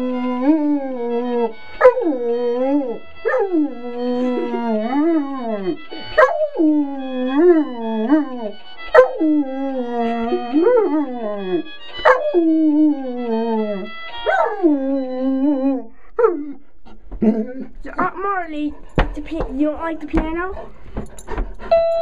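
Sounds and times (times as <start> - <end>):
piano notes: 0.0 - 16.5, 17.1 - 22.0
dog howling: 0.0 - 16.6.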